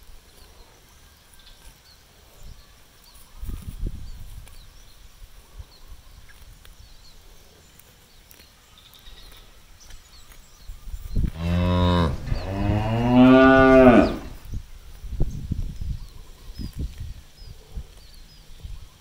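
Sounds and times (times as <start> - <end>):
cow mooing: 11.3 - 14.4.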